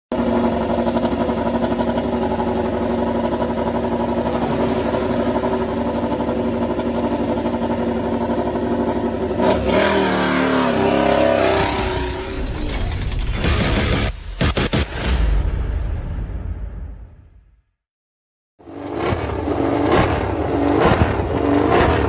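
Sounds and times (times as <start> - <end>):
motorcycle engine idling and revving: 0.1 - 14.1, 18.6 - 22.0.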